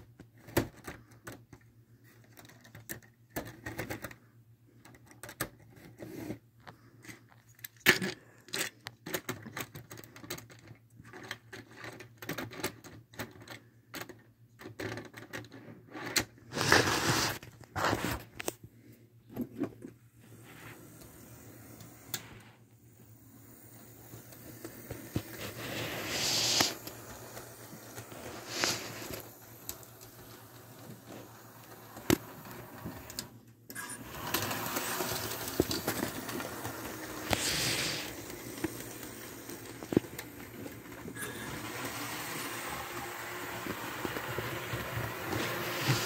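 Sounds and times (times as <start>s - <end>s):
model train motor hum: 23.3s - 46.0s
short hisses: 25.3s - 26.9s, 37.2s - 38.2s.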